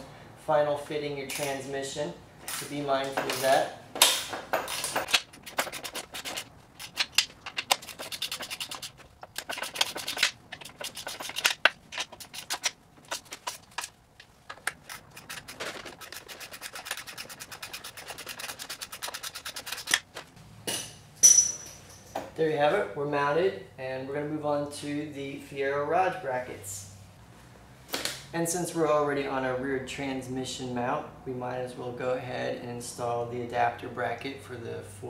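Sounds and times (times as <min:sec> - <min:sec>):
metal rubbing: 0:04.6 - 0:20.1.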